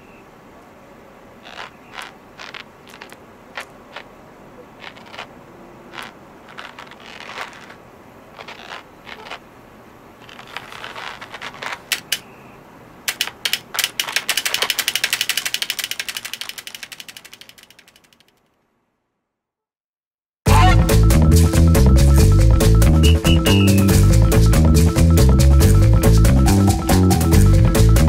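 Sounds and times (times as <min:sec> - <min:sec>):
light rustles: 0:10.2 - 0:12.2
keyboard keys clicking: 0:13.1 - 0:18.3.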